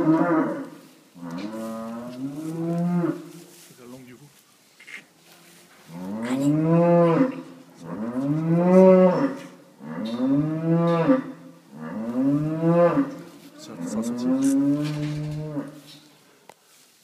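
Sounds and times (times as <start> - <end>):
cow mooing: 5.9 - 15.8.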